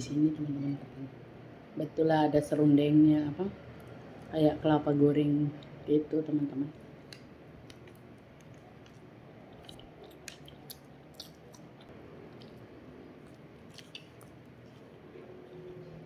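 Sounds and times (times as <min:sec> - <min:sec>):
person chewing food: 0:07.0 - 0:16.0
wet mouth clicks and smacks: 0:07.1 - 0:12.6, 0:13.2 - 0:14.5.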